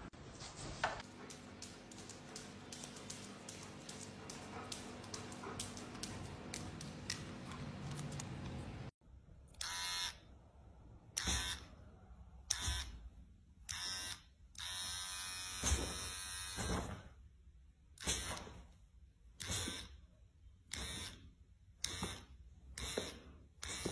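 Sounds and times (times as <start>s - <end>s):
electric hair clipper buzzing: 9.6s - 10.2s, 13.7s - 16.6s.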